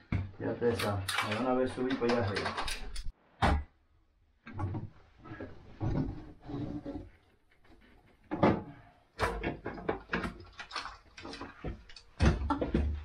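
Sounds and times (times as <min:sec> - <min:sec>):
knocks and scrapes of climbing: 0:04.4 - 0:13.0.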